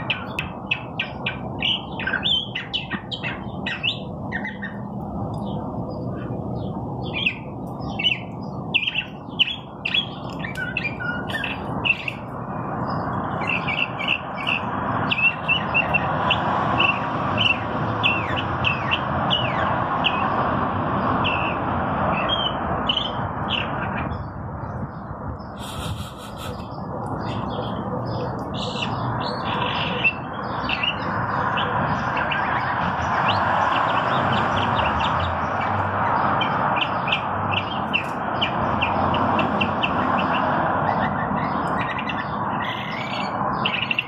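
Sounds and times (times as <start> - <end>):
mockingbird singing: 0.0 - 20.3, 25.4 - 44.0.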